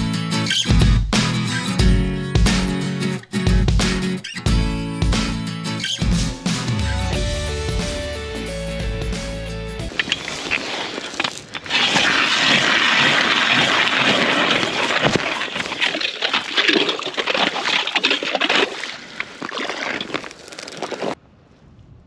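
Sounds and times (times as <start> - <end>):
ice auger drilling into ice: 9.9 - 21.2.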